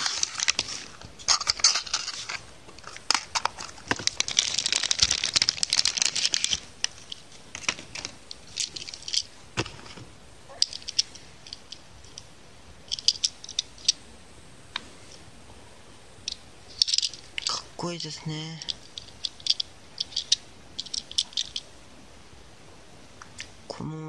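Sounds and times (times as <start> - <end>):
plastic wrapping crinkling and tearing: 0.0 - 9.2.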